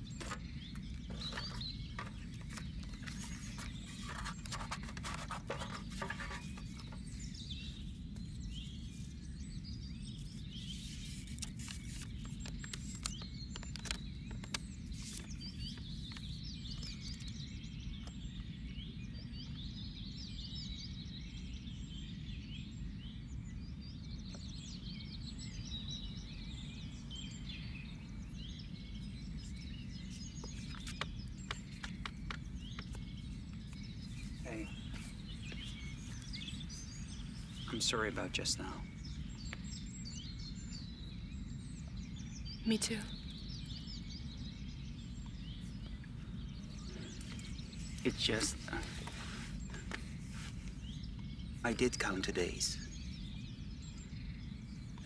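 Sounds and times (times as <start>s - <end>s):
songbirds chirping: 0.0s - 55.0s
paper rustling in tin box: 1.1s - 6.8s.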